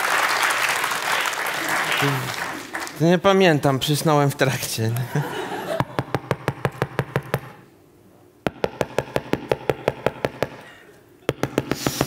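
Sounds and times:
rapid knocking on a door: 0:05.8 - 0:07.6, 0:08.5 - 0:10.6, 0:11.3 - 0:12.0.

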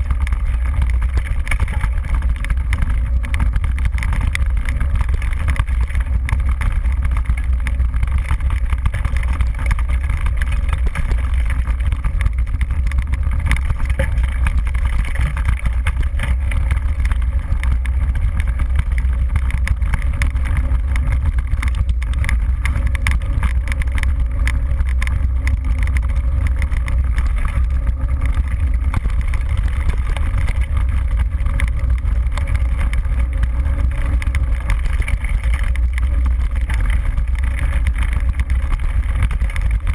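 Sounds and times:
bike ride vibration rumble: 0:00.0 - 0:39.9
knocks and rattles from bumps: 0:00.0 - 0:39.9.

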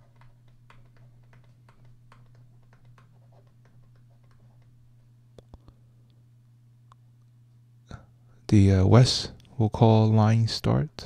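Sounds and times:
stylus ticking on tablet screen: 0:00.0 - 0:04.8
steady low hum: 0:00.0 - 0:11.0.

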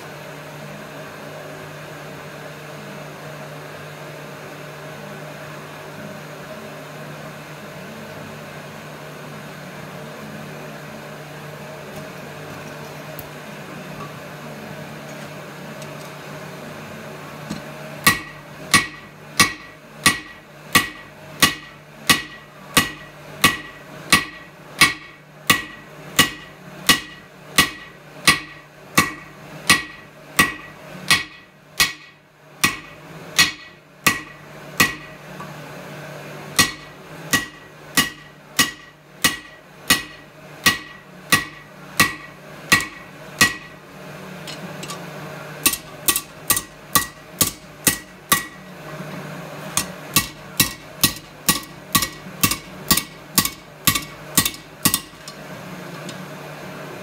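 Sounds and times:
steady low hum: 0:00.0 - 0:57.0
hammer striking steel on anvil: 0:18.0 - 0:35.2, 0:36.6 - 0:43.8, 0:45.6 - 0:48.7, 0:49.8 - 0:55.4.

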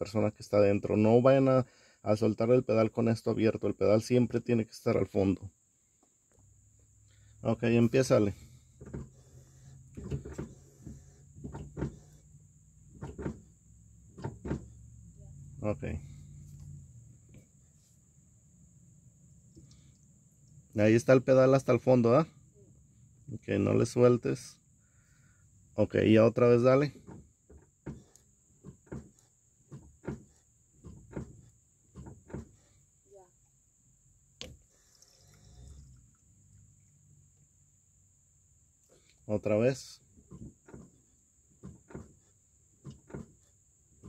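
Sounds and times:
brake pedal knocks: 0:08.7 - 0:12.2, 0:12.9 - 0:14.8, 0:26.9 - 0:32.7, 0:40.2 - 0:44.0.

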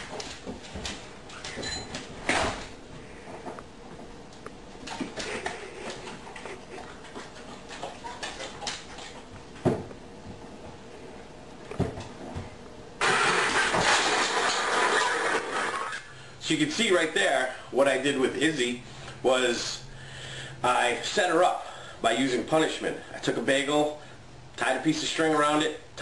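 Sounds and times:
cans crashing in plastic bowl: 0:13.0 - 0:15.7.

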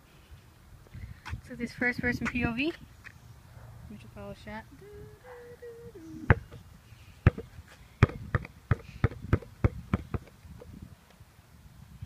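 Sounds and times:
basketball bouncing on concrete: 0:07.2 - 0:10.4.

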